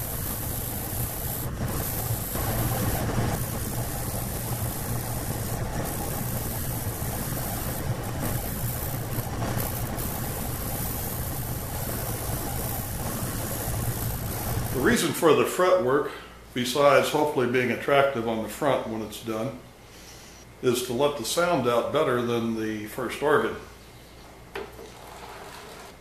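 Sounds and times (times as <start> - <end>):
sander motor hum: 0.0 - 15.0.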